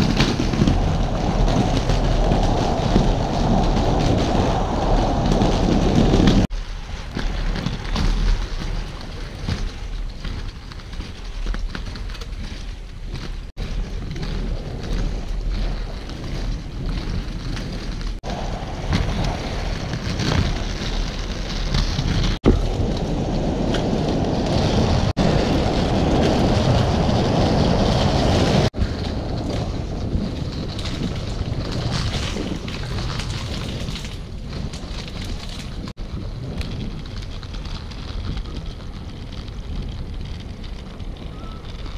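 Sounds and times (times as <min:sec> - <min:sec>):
skate wheels rolling on paving: 0:00.0 - 0:41.9
wind buffeting microphone: 0:00.0 - 0:41.9.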